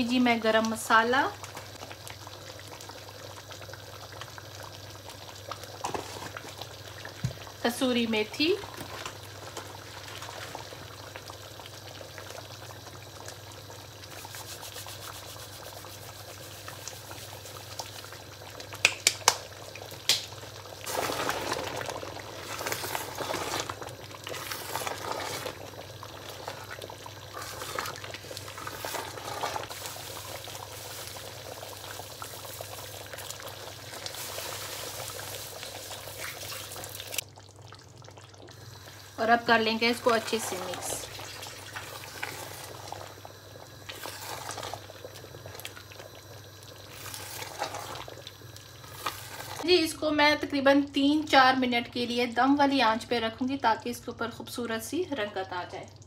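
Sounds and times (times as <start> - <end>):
gravy simmering and bubbling: 0.0 - 52.0, 53.8 - 56.0
spatula scraping through gravy: 22.4 - 25.6, 27.3 - 29.8.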